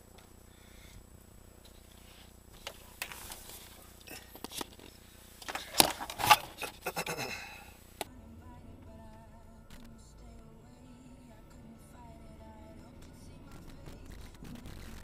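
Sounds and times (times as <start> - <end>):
low hum with wavering tones: 0.0 - 15.0
plastic camera handling noise: 2.6 - 6.8.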